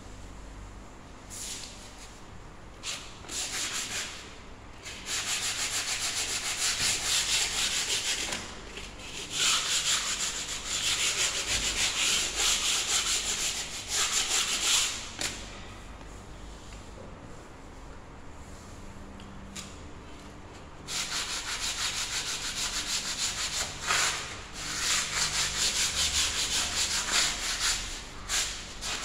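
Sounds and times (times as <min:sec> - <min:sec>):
sandpaper scrubbing a wall: 0:02.8 - 0:15.1, 0:20.9 - 0:29.0.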